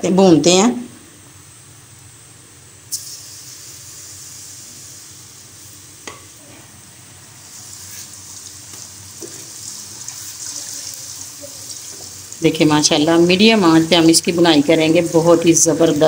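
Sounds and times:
food sizzling in a pan: 2.9 - 16.0
spatula stirring: 7.8 - 12.3.

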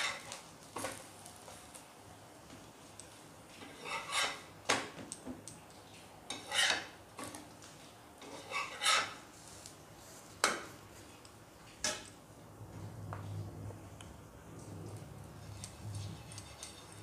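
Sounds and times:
spatula scraping griddle: 0.0 - 1.1, 3.5 - 4.6, 6.3 - 7.4, 8.2 - 10.6, 15.3 - 17.0.

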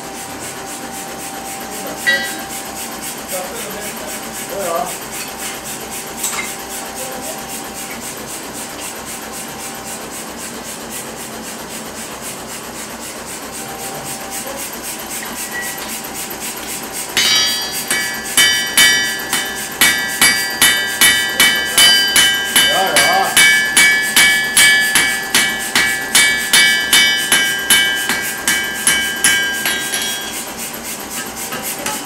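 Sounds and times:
hammer striking iron on anvil: 2.0 - 2.5, 17.1 - 30.5, 31.1 - 32.0.

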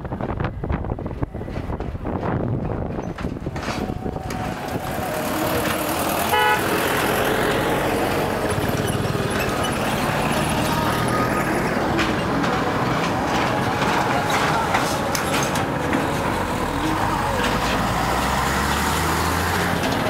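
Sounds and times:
wind on microphone: 0.0 - 6.8
motorbike engine and road noise: 0.0 - 20.0
vehicle horn toot: 6.2 - 7.1.

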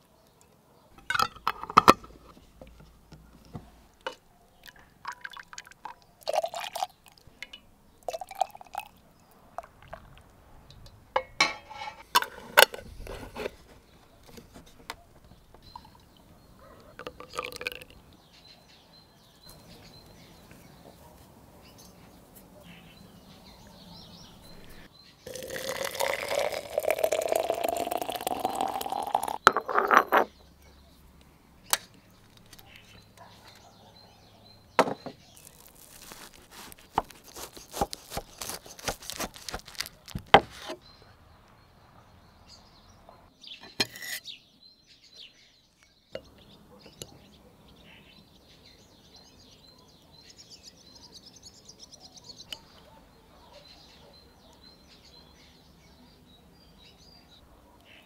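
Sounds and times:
faint birdsong: 0.0 - 58.0
tableware clinking: 1.0 - 2.2, 11.2 - 12.8, 25.3 - 30.3
liquid pouring into container: 4.6 - 7.2, 8.1 - 9.0, 17.0 - 17.9, 25.3 - 29.4.

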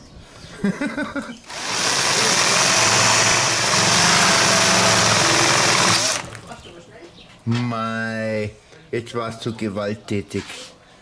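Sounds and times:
electric drill boring into eggshell: 1.5 - 6.4.

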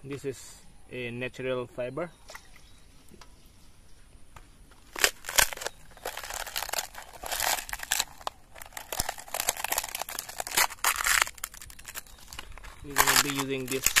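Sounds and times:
dry gourd skin crackling: 4.7 - 14.0.

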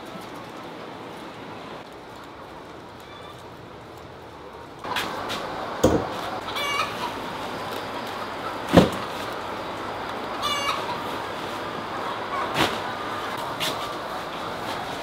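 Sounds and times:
hens clucking: 4.8 - 15.0.

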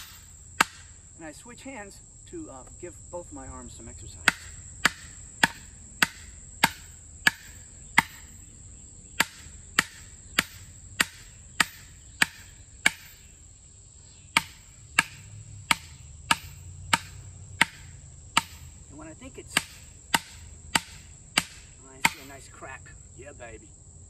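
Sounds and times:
sledge striking steel wedge: 0.0 - 1.0, 4.2 - 8.4, 9.2 - 13.4, 14.3 - 22.4.

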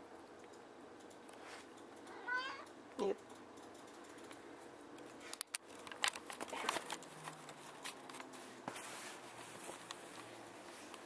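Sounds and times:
camera rustling against clothing: 4.1 - 11.0.

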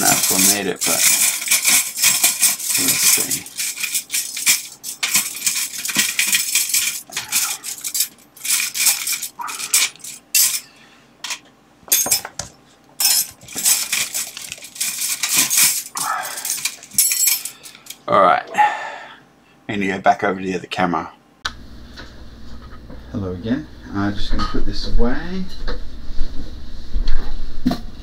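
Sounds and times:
metal hooks jangling and clinking: 0.0 - 12.4, 13.0 - 18.0.

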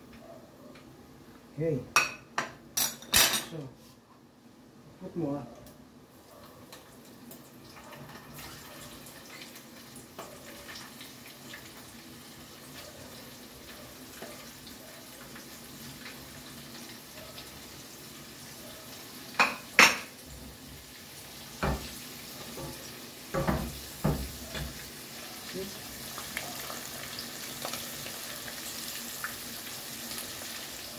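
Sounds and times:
cookware clinking and knocking: 2.0 - 3.5, 19.4 - 20.1
oil frying hiss: 6.1 - 30.9.

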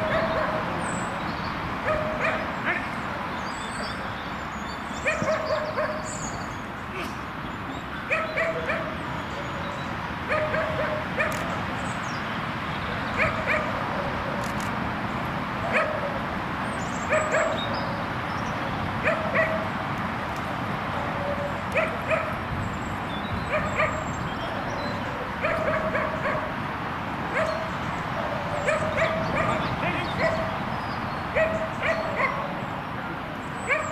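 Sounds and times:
dog barking high: 0.0 - 0.7, 1.8 - 2.8, 5.0 - 6.1, 8.1 - 9.0, 10.3 - 11.6, 13.2 - 14.6, 15.7 - 16.2, 17.1 - 17.7, 19.0 - 19.7, 21.2 - 22.4, 23.5 - 24.1, 25.2 - 26.6, 27.3 - 30.6, 31.3 - 32.6, 33.7 - 33.9.

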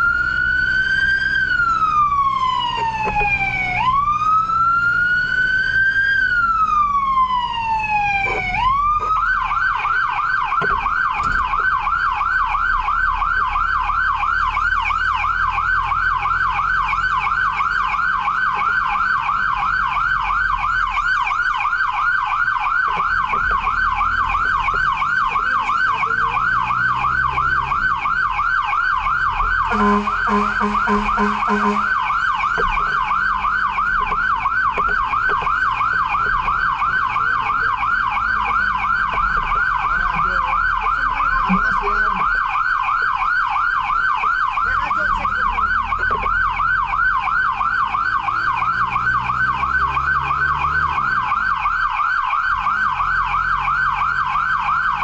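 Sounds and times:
electronic siren wailing and yelping: 0.0 - 55.0
horn short blasts: 29.7 - 32.0.

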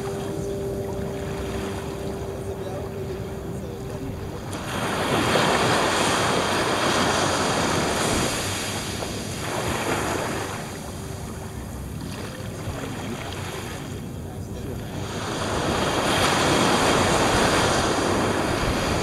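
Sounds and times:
small waves washing on sand: 3.6 - 19.0.

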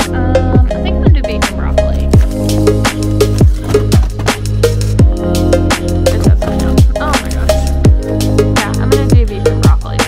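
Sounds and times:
drum hits: 0.6 - 7.2.

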